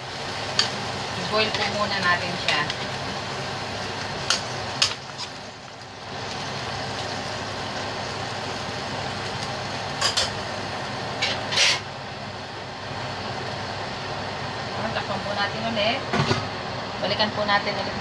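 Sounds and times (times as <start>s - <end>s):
metal spatula scraping wok: 11.2s - 11.9s.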